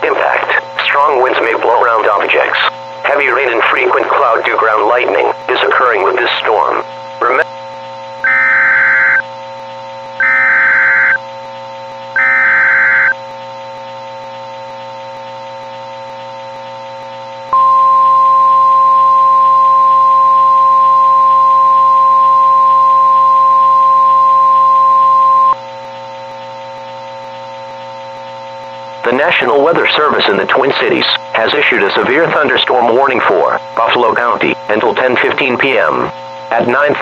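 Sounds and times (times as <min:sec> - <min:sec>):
background hum: 0:00.0 - 0:37.0
steady warning alarm tone: 0:01.6 - 0:34.6
alert data bursts: 0:08.2 - 0:09.3, 0:10.2 - 0:11.3, 0:12.0 - 0:13.2, 0:17.6 - 0:25.6.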